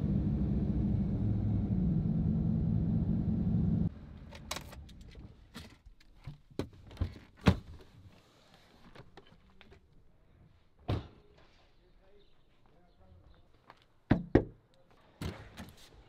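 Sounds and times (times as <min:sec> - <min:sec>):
vehicle engine and road rumble: 0:00.0 - 0:06.0.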